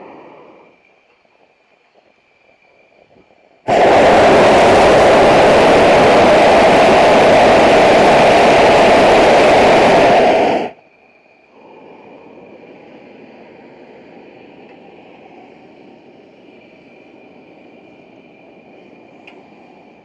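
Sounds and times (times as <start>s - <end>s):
propane burner blast: 0.0s - 0.8s, 3.6s - 10.8s
faint hiss with high tone: 0.0s - 20.0s.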